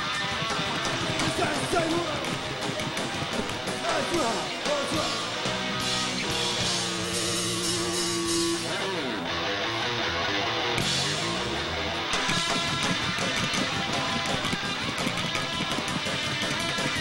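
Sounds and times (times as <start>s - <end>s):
live band playing: 0.0s - 9.0s.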